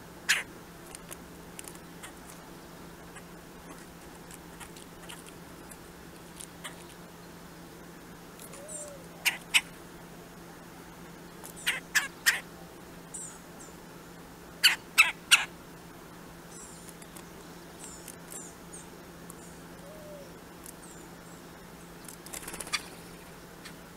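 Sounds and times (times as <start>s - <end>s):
wings fluttering: 22.0s - 23.4s.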